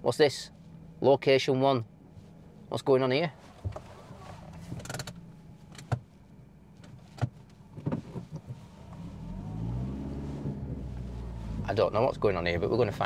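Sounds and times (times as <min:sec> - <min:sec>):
car cabin rumble: 0:03.4 - 0:13.0
sharp clicks and knocks: 0:04.7 - 0:06.1.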